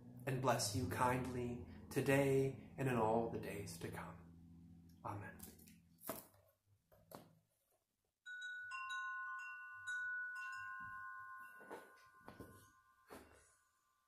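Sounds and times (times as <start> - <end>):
wind chime ringing: 8.2 - 14.0.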